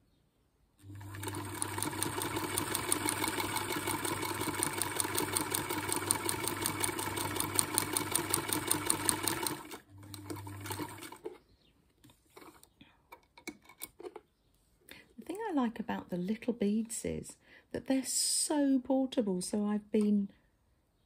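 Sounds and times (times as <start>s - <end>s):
sewing machine motor hum: 0.8s - 11.3s
sewing machine stitching fast: 0.9s - 11.3s.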